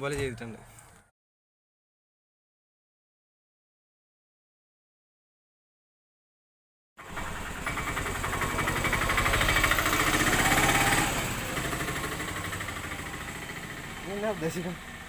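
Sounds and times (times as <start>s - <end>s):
two-stroke motorcycle engine: 7.0s - 15.0s.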